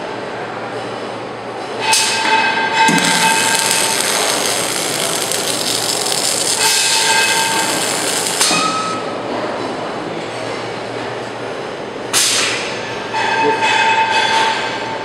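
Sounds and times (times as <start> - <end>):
welding arc hissing and crackling: 2.9 - 9.0.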